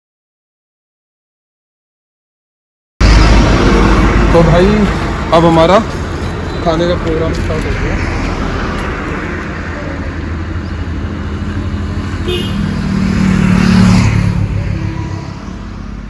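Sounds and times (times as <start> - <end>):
vehicle passing by: 3.0 - 16.0.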